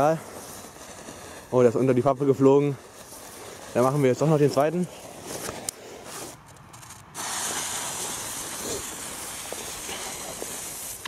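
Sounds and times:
ground firework hissing: 0.0 - 11.0.

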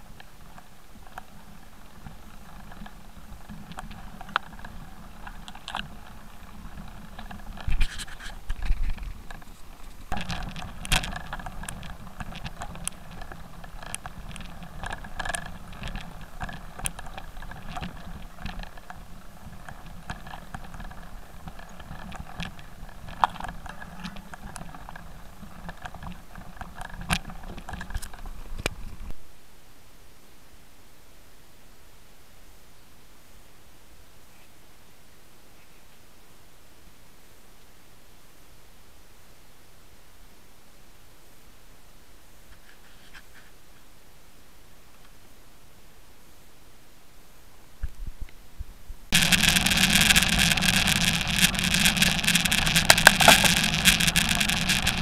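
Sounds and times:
mountain bike rattling: 0.0 - 29.1, 49.1 - 55.0
stones clicking and knocking: 49.1 - 55.0.

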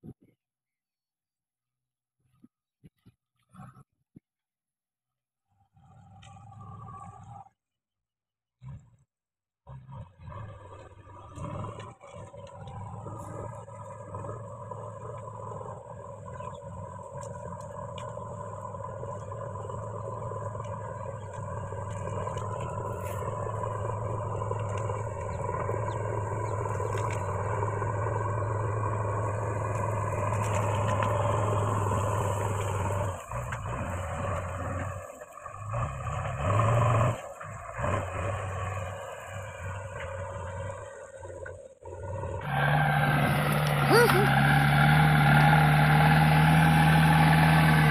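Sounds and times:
backhoe diesel engine under load: 9.7 - 47.9.

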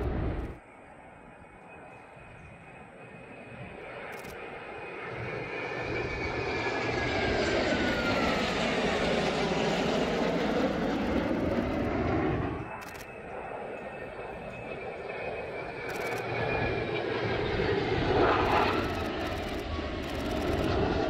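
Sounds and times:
jet engines roaring past: 0.0 - 21.0
jet whine falling in pitch: 4.6 - 21.0.

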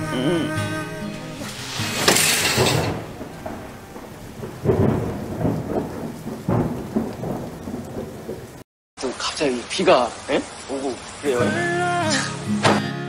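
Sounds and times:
steady rain hiss: 0.0 - 12.7
thunder crack: 1.1 - 8.6
low rolls of thunder: 1.4 - 8.6.

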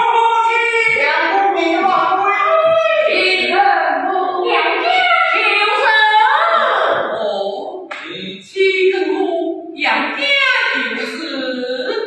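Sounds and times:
high-pitched opera singing: 0.0 - 12.0.

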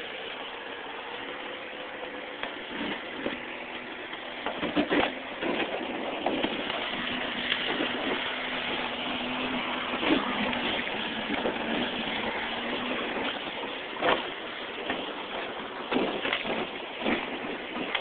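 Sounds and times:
motorboat motor running: 0.0 - 18.0
boat hull grinding through ice: 2.5 - 18.0.

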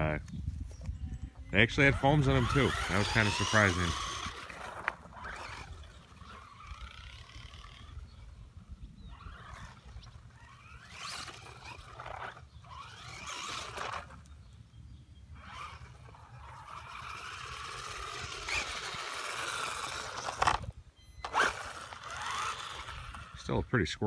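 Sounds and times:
rc car motor whining: 1.1 - 14.6, 15.3 - 23.7.

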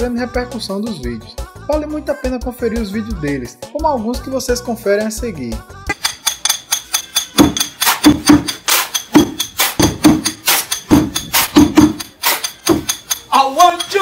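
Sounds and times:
tool strikes: 5.9 - 14.0.

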